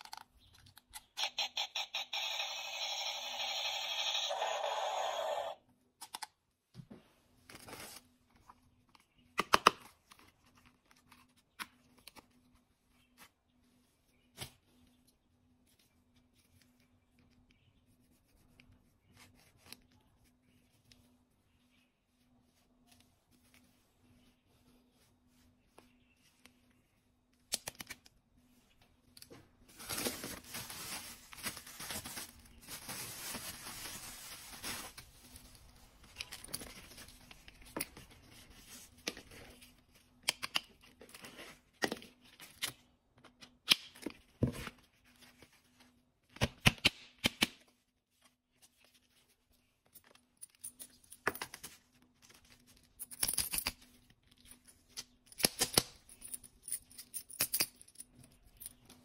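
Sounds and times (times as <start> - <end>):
plastic packaging rustling and tearing: 29.7 - 39.0.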